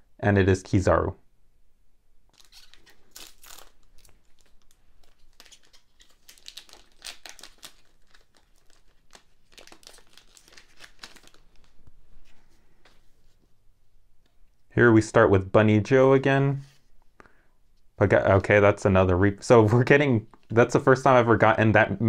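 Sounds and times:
plastic wrapper crinkling and tearing: 2.3 - 12.0.

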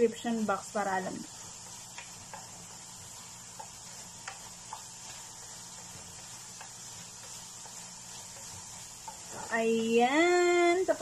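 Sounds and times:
faint steady hiss: 0.0 - 11.0
spatula clicking on frying pan: 1.5 - 9.3.

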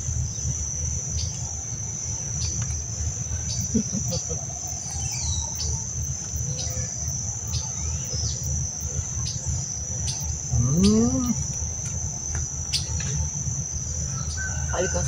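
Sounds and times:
insect chorus trilling: 0.0 - 15.0
low background rumble: 0.0 - 15.0
rising and falling call: 10.5 - 11.4.

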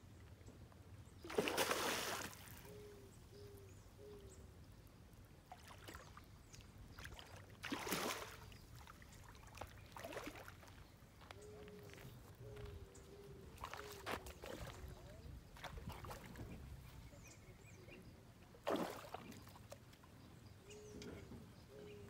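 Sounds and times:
fish splashing in water: 1.3 - 2.6, 7.0 - 10.7, 18.6 - 19.5.

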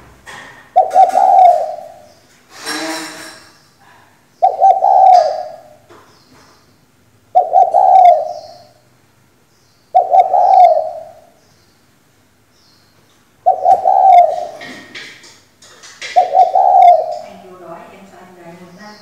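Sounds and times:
dove cooing: 0.7 - 2.2, 4.4 - 5.9, 7.3 - 8.8, 9.9 - 11.4, 13.4 - 15.1, 15.9 - 17.8.

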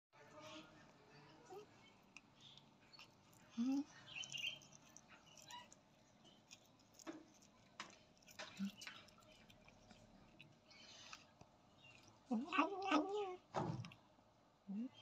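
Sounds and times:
cat teeth crunching on bone: 1.8 - 13.2.

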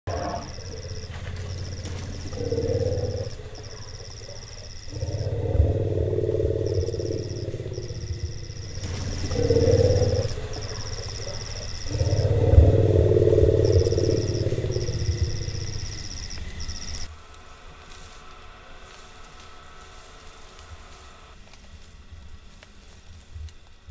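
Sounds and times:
deep rumbling: 0.0 - 17.1
night insects trilling: 0.1 - 23.9.

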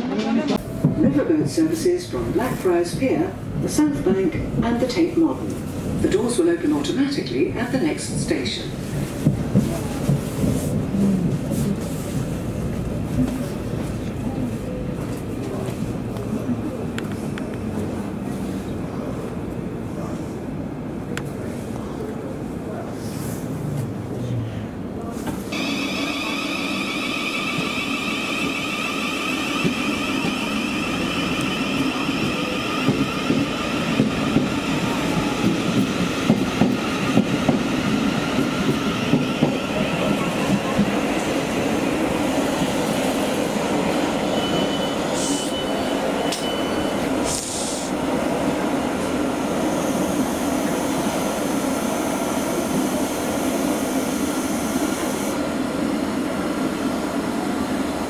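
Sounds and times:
electric train rumbling on rails: 0.0 - 58.0
train whine: 23.6 - 58.0
clattering knocks of train wheels: 25.3 - 41.4.

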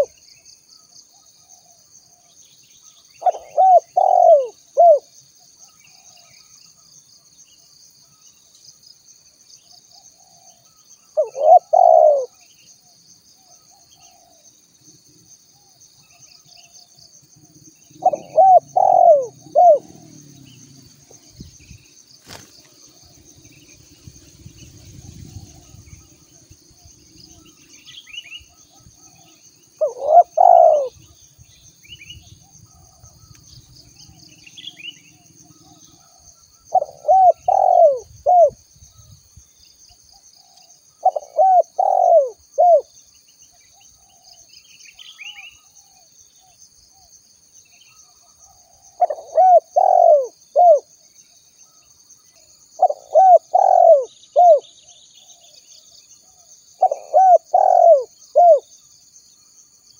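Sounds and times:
small birds chirping: 0.0 - 7.0, 9.6 - 59.0
dove cooing: 3.2 - 5.1, 11.2 - 12.4, 17.9 - 21.3, 28.7 - 31.0, 35.5 - 38.6, 40.4 - 42.9, 48.5 - 50.9, 52.8 - 54.7, 56.3 - 58.6.

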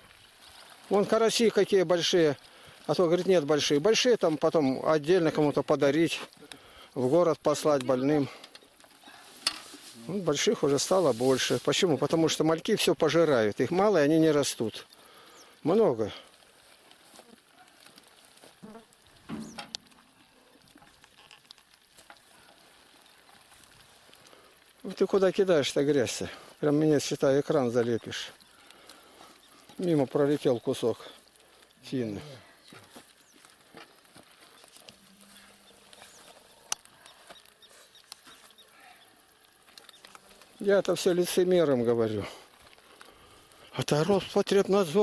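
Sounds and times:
small clicks: 35.9 - 38.6, 39.6 - 40.6.

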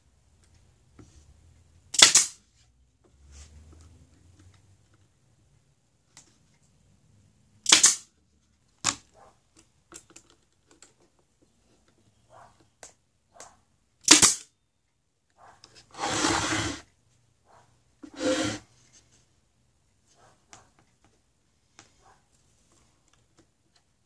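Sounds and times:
nail gun shots: 1.9 - 2.4, 7.6 - 8.1, 14.0 - 14.5.

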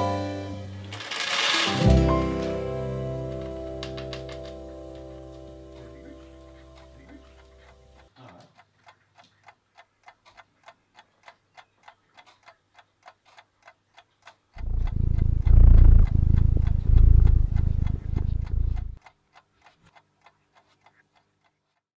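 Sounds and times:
wall clock ticking: 3.4 - 21.9
loud low rumble: 14.6 - 19.0.

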